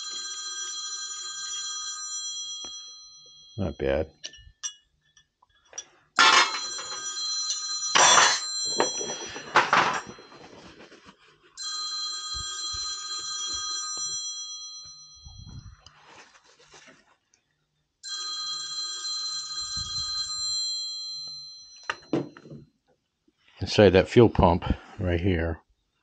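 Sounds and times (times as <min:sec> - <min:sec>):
electric ringing tone: 0:00.0 - 0:04.7, 0:06.2 - 0:10.7, 0:11.6 - 0:15.9, 0:18.0 - 0:22.4
handling noises: 0:06.2 - 0:11.6.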